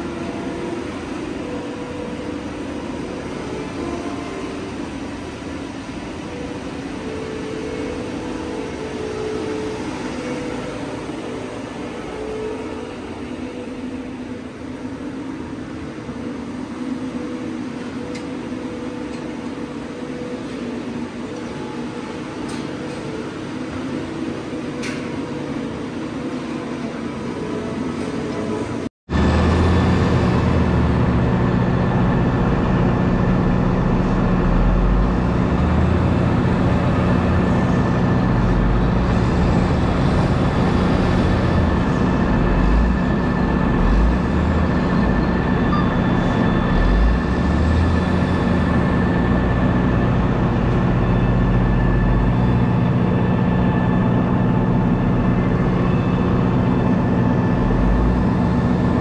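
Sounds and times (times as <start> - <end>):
diesel engines running: 0.0 - 59.0.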